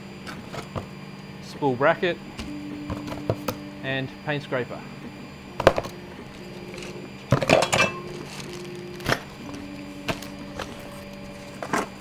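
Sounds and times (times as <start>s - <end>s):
cardboard packaging rustling: 6.3s - 12.0s.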